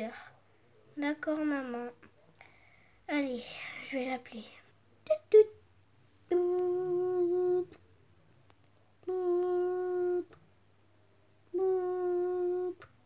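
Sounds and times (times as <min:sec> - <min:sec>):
person humming long steady notes: 0:06.3 - 0:07.8, 0:09.0 - 0:10.4, 0:11.5 - 0:12.9.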